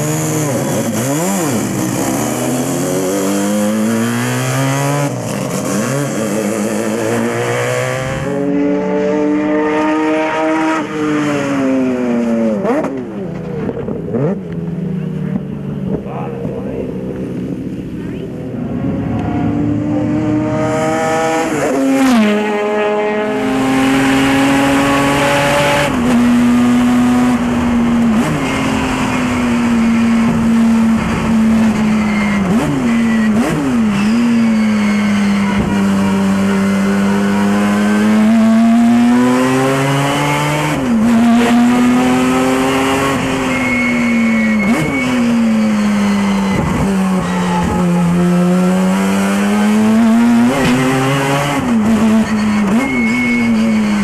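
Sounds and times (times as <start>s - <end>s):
rotary engine revving high: 0.0s - 54.0s.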